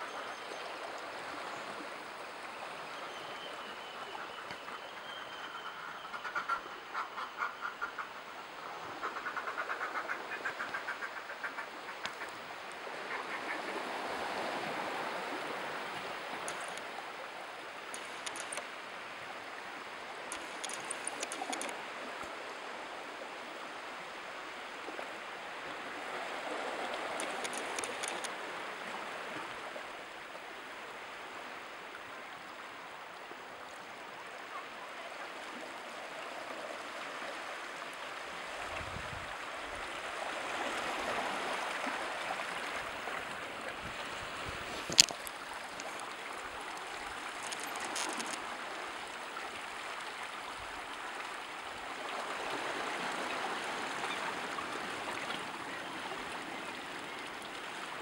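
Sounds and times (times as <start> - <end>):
faint high ticks: 12.0 - 12.8, 16.4 - 16.9, 17.9 - 18.7, 20.3 - 22.3, 27.2 - 28.3, 44.8 - 48.4.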